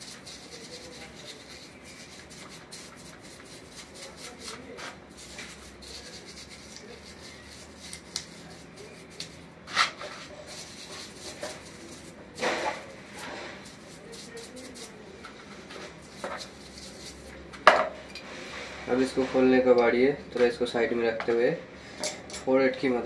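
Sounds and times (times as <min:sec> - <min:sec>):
brush scrubbing metal: 0:00.0 - 0:17.4.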